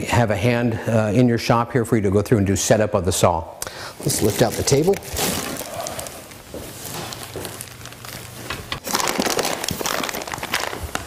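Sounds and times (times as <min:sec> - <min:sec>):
plastic wrap crinkling: 0:04.0 - 0:11.0.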